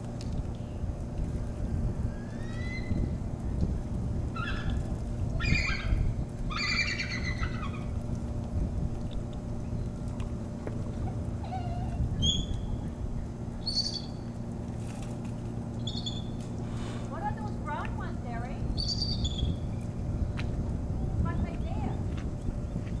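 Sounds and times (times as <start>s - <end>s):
steady low hum: 0.0s - 23.0s
eagle calling: 4.4s - 4.8s, 5.4s - 7.9s.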